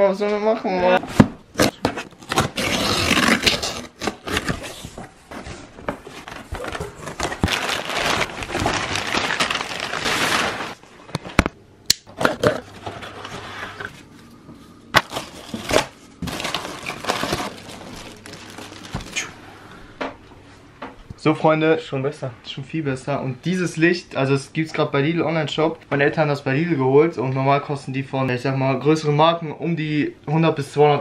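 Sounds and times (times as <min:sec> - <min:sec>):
paper and plastic rustling: 0:01.0 - 0:11.4, 0:12.2 - 0:14.3, 0:15.0 - 0:19.4.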